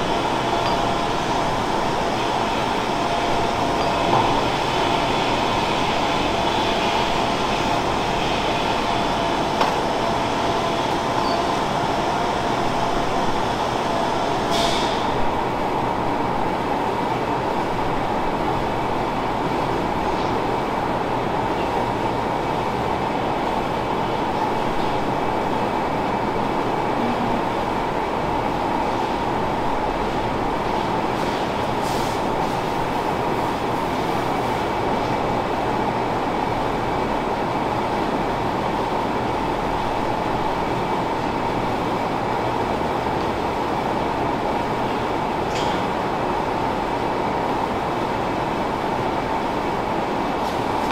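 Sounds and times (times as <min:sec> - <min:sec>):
milking equipment running: 0:00.0 - 0:15.3.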